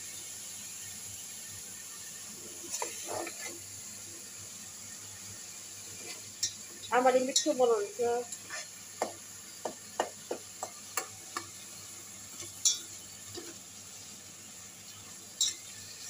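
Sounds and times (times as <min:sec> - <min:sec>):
faint frying: 0:00.0 - 0:16.0
utensil scraping metal pot: 0:02.5 - 0:03.6, 0:08.3 - 0:08.8.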